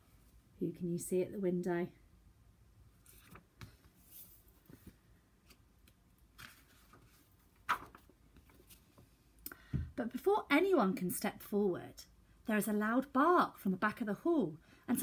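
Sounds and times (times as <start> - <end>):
paper pages rustling: 3.0 - 9.1.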